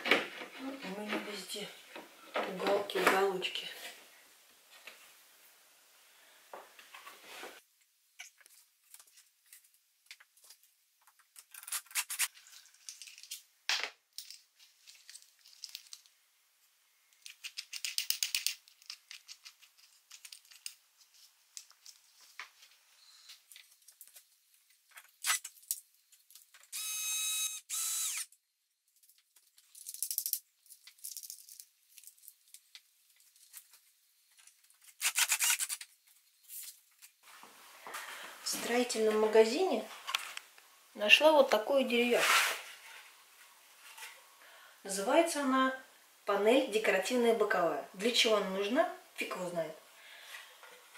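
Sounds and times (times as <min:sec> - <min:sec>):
cordless drill motor burst: 0:26.7 - 0:28.3
screws and wooden parts rattling: 0:34.8 - 0:35.9.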